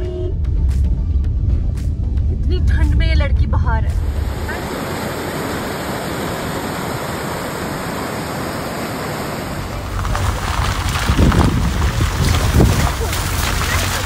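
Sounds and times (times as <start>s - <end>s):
steady rushing noise: 0.4s - 14.0s.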